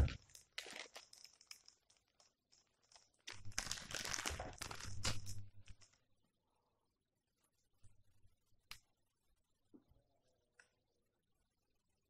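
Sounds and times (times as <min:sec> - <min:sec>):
plastic bag crinkling: 0:00.0 - 0:01.7, 0:03.3 - 0:05.9.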